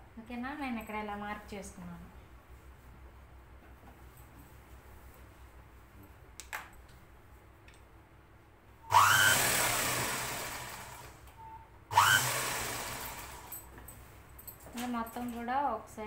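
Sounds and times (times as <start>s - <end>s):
sewing machine motor whining: 8.9s - 11.2s, 11.9s - 13.5s.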